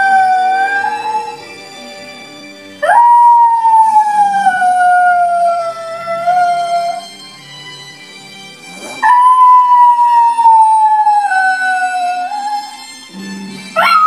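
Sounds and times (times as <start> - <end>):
dog howling: 0.0 - 1.6, 2.8 - 7.2, 8.9 - 13.0, 13.8 - 14.0.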